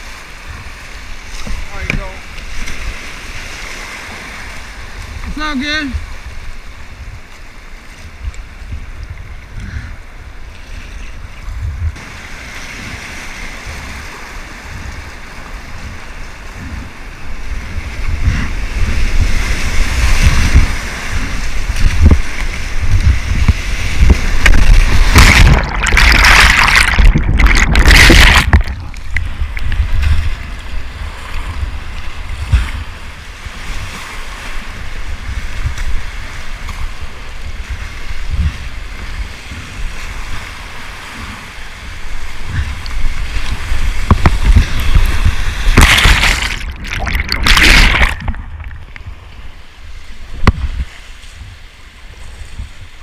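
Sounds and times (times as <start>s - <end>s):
whitewater rushing and splashing: 0.0s - 9.6s, 10.5s - 52.3s
wind noise on microphone: 0.0s - 53.0s
breaking wave crashing: 24.0s - 29.0s, 45.6s - 48.8s.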